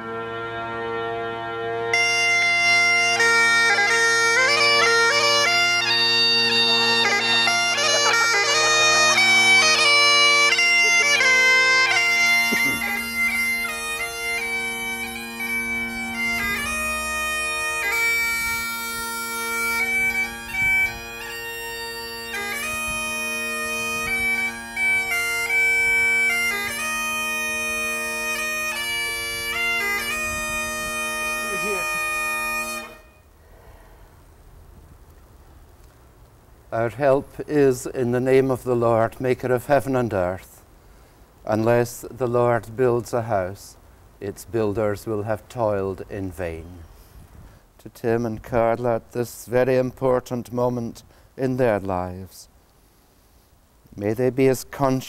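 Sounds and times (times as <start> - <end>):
bagpipe chanter melody: 0.0 - 33.4
bagpipe drones: 0.0 - 33.4.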